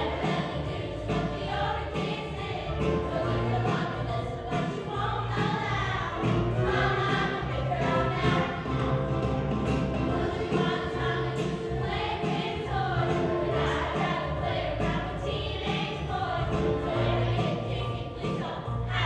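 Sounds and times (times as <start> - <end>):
youth choir singing: 0.0 - 9.2, 9.8 - 19.0
instrumental accompaniment with bass: 0.0 - 19.0.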